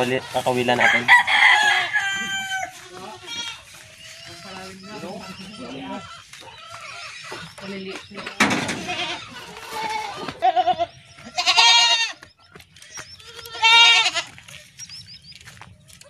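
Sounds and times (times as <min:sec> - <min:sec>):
goats bleating: 0:00.0 - 0:07.8, 0:08.6 - 0:12.2, 0:13.1 - 0:14.5.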